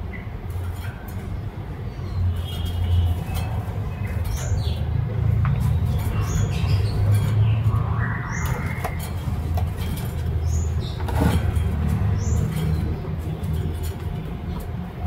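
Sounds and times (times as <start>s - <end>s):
songbird high chirps: 1.9s - 9.4s.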